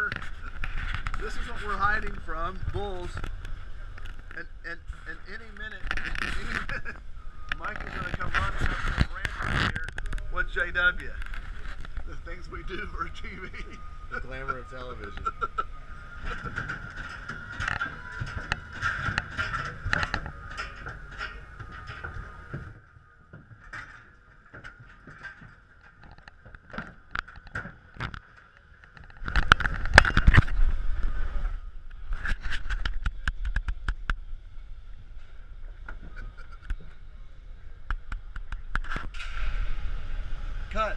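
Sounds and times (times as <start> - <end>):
faint steady whine: 0.0 - 40.9
metal clanks and knocks in trailer: 14.2 - 28.1.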